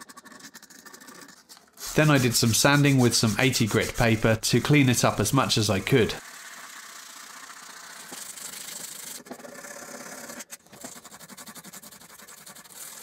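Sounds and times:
sandpaper rubbing on wood: 1.8 - 6.2, 10.8 - 13.0.

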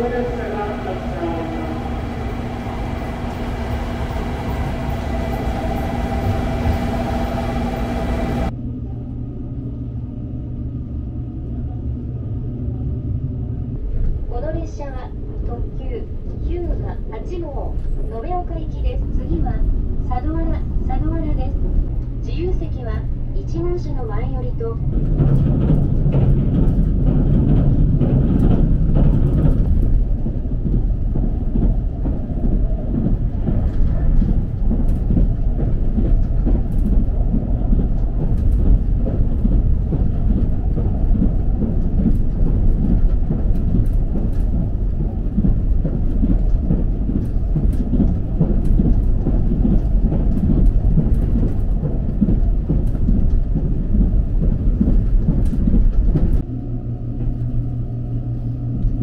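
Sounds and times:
train cabin rumble: 0.0 - 59.0.

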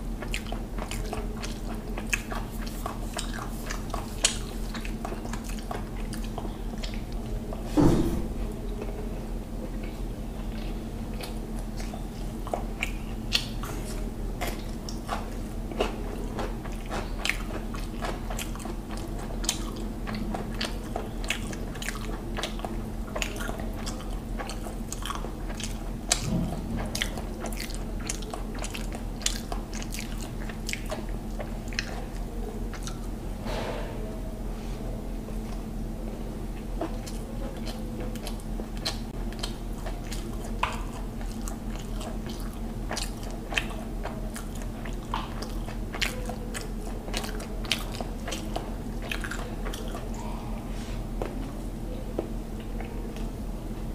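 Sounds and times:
steady low hum: 0.0 - 53.9
wet chewing and lip smacks: 0.2 - 7.6, 9.7 - 33.2, 36.5 - 50.4.

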